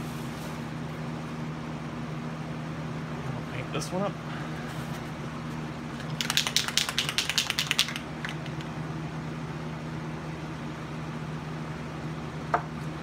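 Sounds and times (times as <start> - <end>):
exhaust fan hum: 0.0 - 13.0
spray can ball rattling: 6.0 - 8.7.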